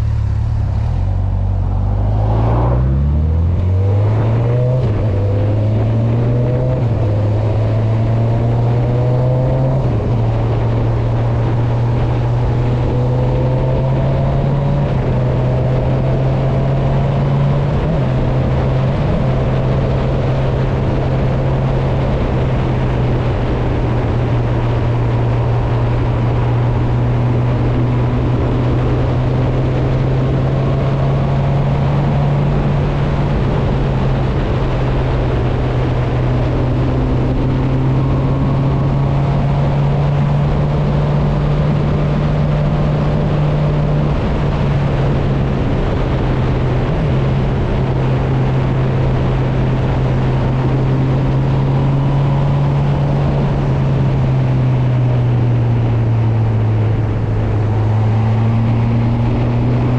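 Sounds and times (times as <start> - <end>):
motorcycle engine running: 0.0 - 6.2
faint engines rising in pitch: 0.0 - 11.0.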